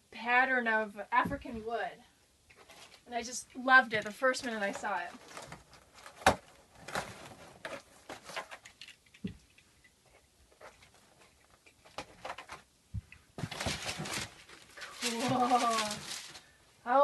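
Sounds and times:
cardboard and paper rustling: 0:02.6 - 0:09.0, 0:10.1 - 0:16.6.

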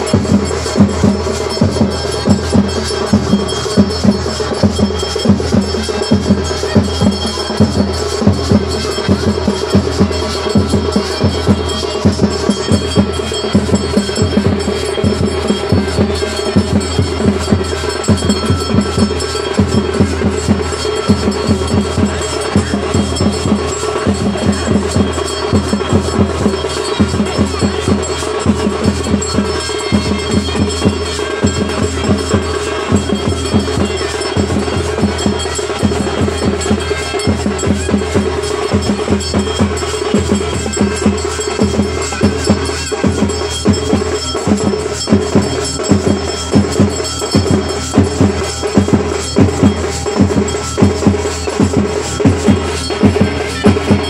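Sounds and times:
drum music with held tone: 0:00.0 - 0:54.0.

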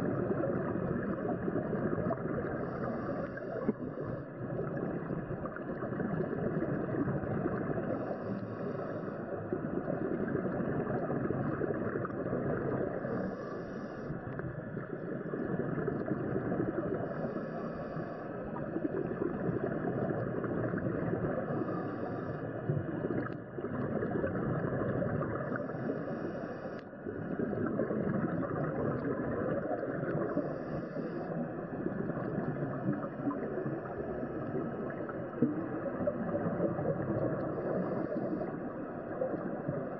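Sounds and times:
underwater rushing and bubbling: 0:00.0 - 0:39.9
regulator breathing hiss: 0:02.6 - 0:04.3, 0:07.9 - 0:09.3, 0:13.0 - 0:14.2, 0:17.0 - 0:18.4, 0:21.5 - 0:22.6, 0:25.4 - 0:26.9, 0:30.2 - 0:31.4.

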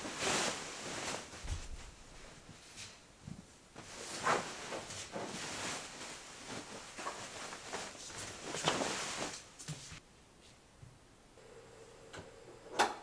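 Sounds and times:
bedding rustling: 0:00.0 - 0:10.0.

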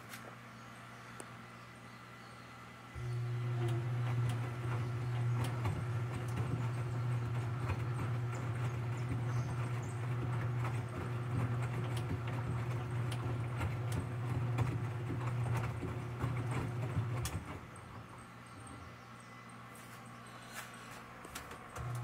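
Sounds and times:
washing machine motor hum: 0:00.0 - 0:22.0
laundry clicking and knocking: 0:03.7 - 0:17.8.

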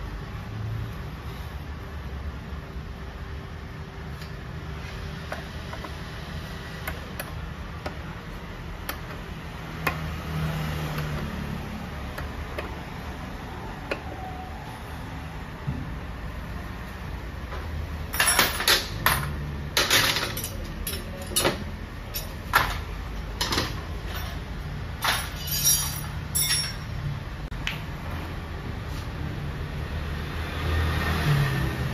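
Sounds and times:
hand tools clinking: 0:18.1 - 0:22.8, 0:25.0 - 0:27.0.

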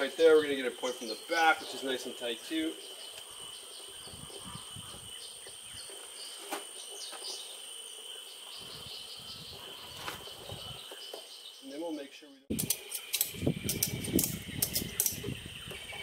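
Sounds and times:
insects buzzing: 0:00.0 - 0:16.0
sharp clicks: 0:12.5 - 0:15.3.

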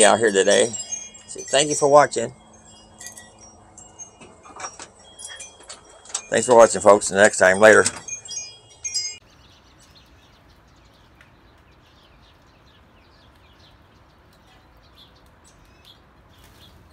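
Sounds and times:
wind chimes ringing: 0:00.0 - 0:10.0.

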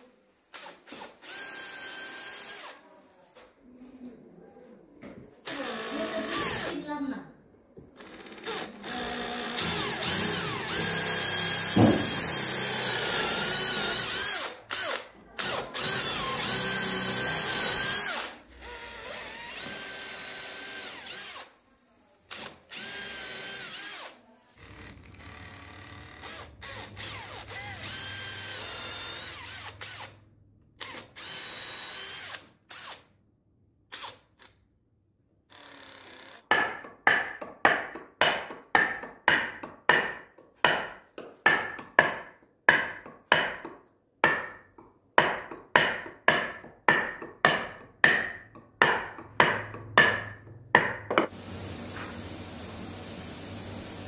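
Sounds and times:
cordless drill boring into wood: 0:00.5 - 0:02.8, 0:05.5 - 0:06.8, 0:08.0 - 0:21.5, 0:22.3 - 0:30.2, 0:30.8 - 0:33.1, 0:35.5 - 0:36.4
sharp knock: 0:11.7 - 0:12.2.

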